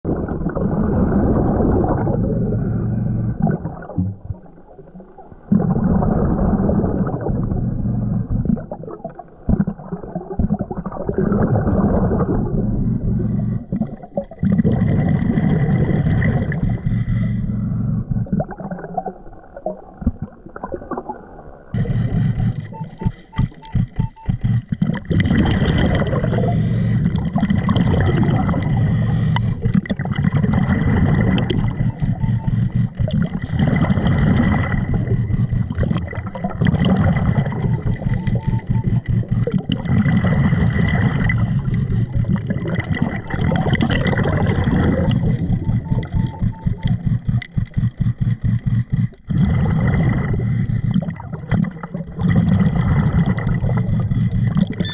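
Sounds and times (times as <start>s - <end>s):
bubbles rumbling and gurgling: 0.0s - 54.9s
short beeps: 21.8s - 26.7s, 31.0s - 36.2s, 36.8s - 40.1s, 42.9s - 49.0s.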